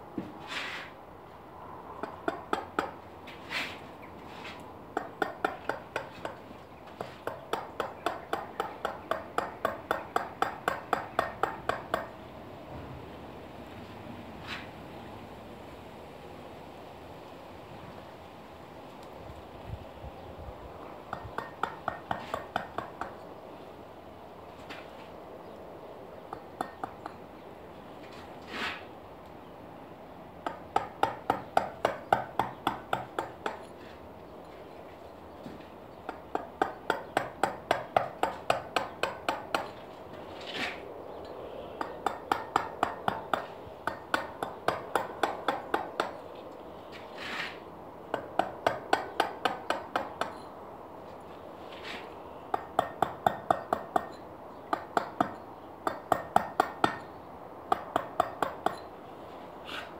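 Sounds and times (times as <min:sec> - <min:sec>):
mallet striking chisel into stone: 0:07.2 - 0:12.1, 0:21.1 - 0:23.2, 0:26.3 - 0:27.2, 0:30.4 - 0:33.7, 0:36.1 - 0:39.7, 0:41.8 - 0:46.2, 0:48.1 - 0:50.5, 0:52.5 - 0:57.1, 0:57.7 - 0:58.9.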